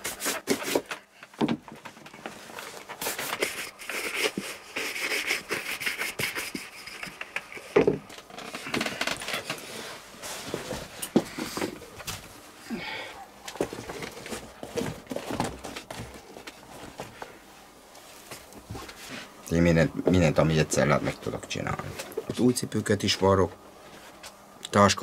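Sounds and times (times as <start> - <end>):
shoes knocking on wooden shelf: 1.4 - 1.9, 7.8 - 8.1.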